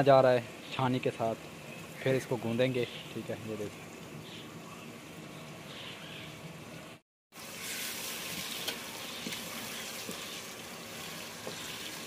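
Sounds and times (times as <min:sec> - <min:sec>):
onions sizzling in a pot: 0:00.0 - 0:04.4, 0:07.3 - 0:12.0.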